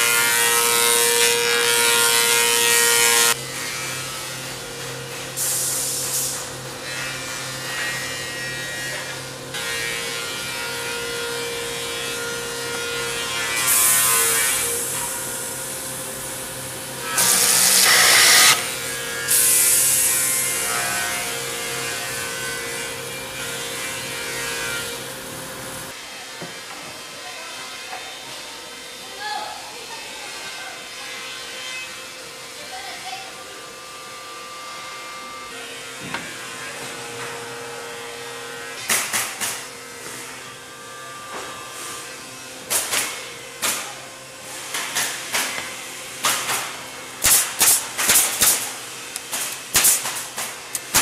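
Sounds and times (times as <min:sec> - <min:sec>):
woodworking machine humming: 0:06.6 - 0:26.0
cutter head cutting wood: 0:17.0 - 0:19.5.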